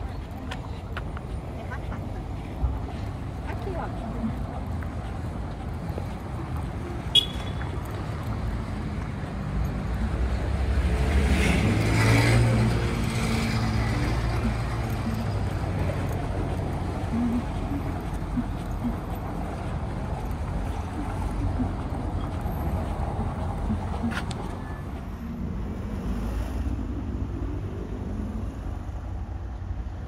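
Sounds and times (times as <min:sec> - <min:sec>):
street traffic rumble: 0:00.0 - 0:30.0
vehicle passing close: 0:08.2 - 0:29.2.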